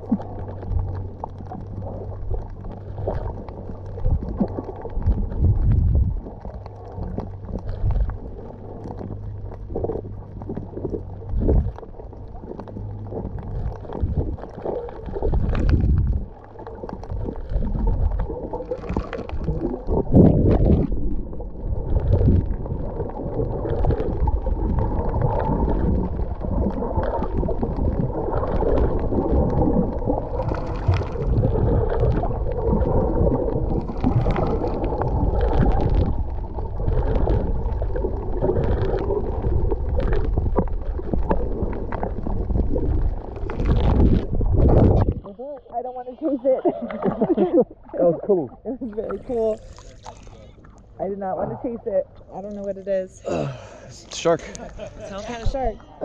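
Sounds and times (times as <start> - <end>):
underwater rumble of moving water: 0.0 - 56.0
underwater swishes: 0.0 - 56.0.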